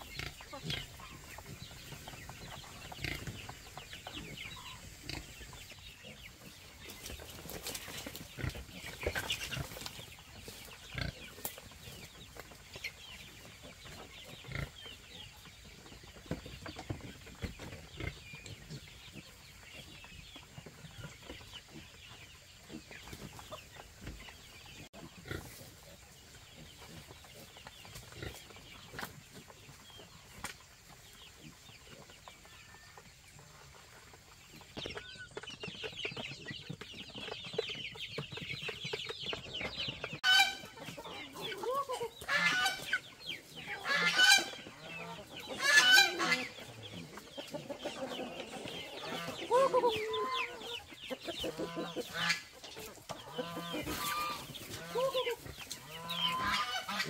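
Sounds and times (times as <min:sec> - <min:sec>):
chickens clucking: 0:00.0 - 0:57.0
chicks cheeping: 0:00.0 - 0:57.0
loud drawn-out chicken calls: 0:38.6 - 0:57.0.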